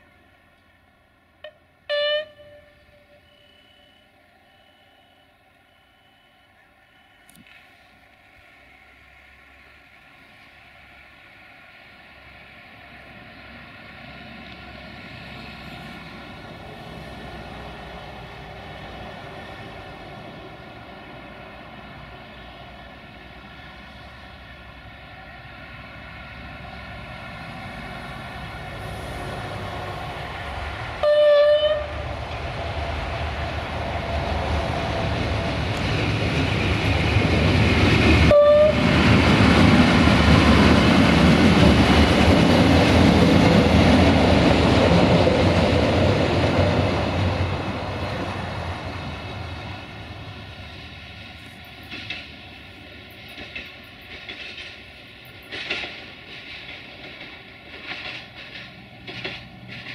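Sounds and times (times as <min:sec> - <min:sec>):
diesel engine of railcar: 0:00.0 - 0:59.9
train wheels on rails: 0:00.0 - 0:59.9
train horn blast: 0:01.4 - 0:03.6, 0:31.0 - 0:32.2, 0:38.2 - 0:39.0.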